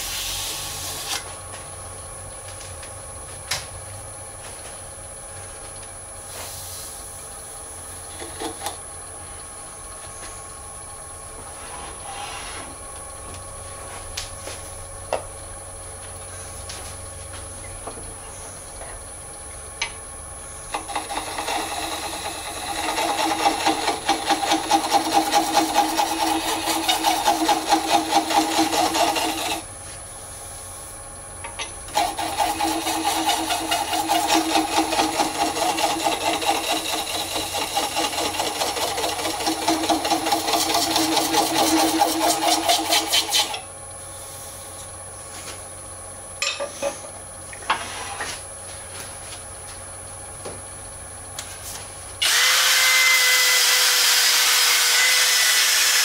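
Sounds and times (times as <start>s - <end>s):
lathe humming: 20.7s - 29.7s, 31.9s - 43.7s
turning tool scraping resin: 20.7s - 29.7s, 31.9s - 43.6s.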